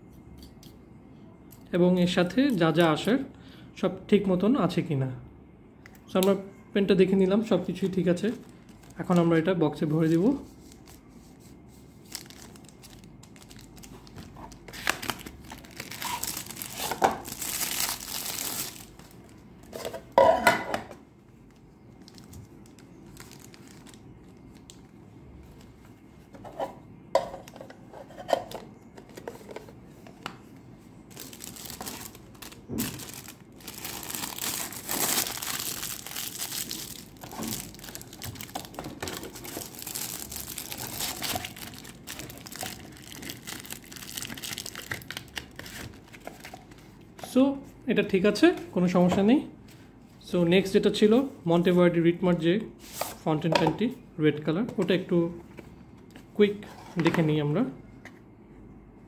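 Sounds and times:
plastic packaging crinkling: 7.6s - 11.2s, 11.8s - 19.9s, 21.3s - 25.0s, 31.0s - 47.0s.

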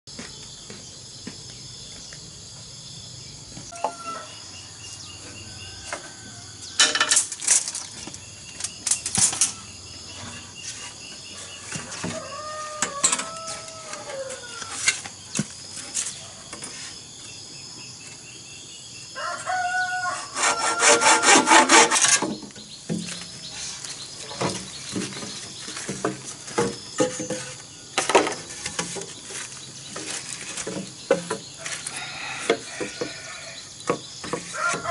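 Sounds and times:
insects chirping: 0.1s - 34.9s
rooster crowing: 3.7s - 4.7s, 11.9s - 14.8s, 19.2s - 21.8s, 31.6s - 33.7s, 34.5s - 34.9s
hand saw cutting bamboo: 20.2s - 22.3s.

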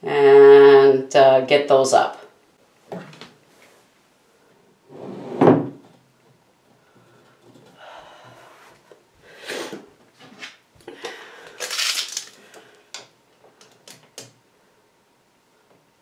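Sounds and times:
wood scraping and knocking on metal: 4.9s - 6.0s.

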